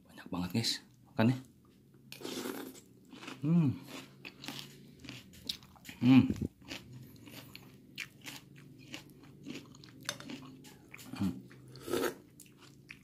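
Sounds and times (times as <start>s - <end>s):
crunchy food chewing: 2.2s - 13.0s.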